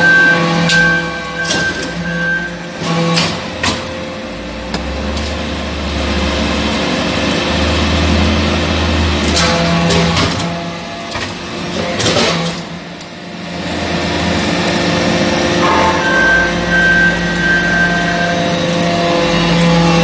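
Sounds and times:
high machine whine: 14.9s - 20.0s
sharp knock: 15.6s - 17.2s.

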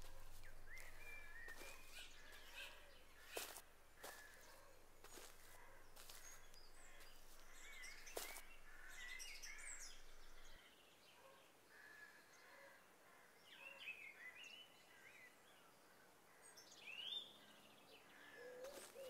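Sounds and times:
faint birdsong: 0.0s - 19.0s.

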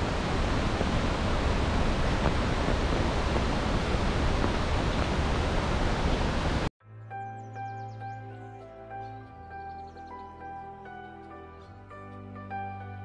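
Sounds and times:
falling water rushing: 0.0s - 6.7s.

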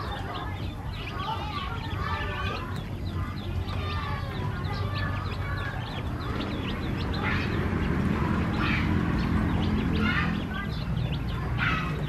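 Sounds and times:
ducklings and chicks peeping: 0.0s - 12.0s
steady low rumble: 0.0s - 12.0s.

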